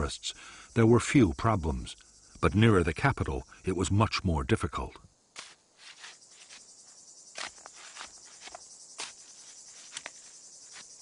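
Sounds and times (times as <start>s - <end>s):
insects chirring: 0.0s - 11.0s
hand tool digging into earth: 5.4s - 6.7s, 7.3s - 11.0s.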